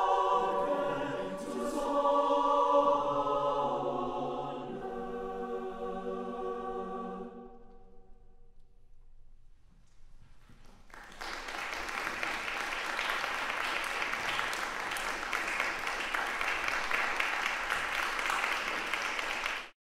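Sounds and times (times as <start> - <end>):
audience applauding: 10.6 - 19.8.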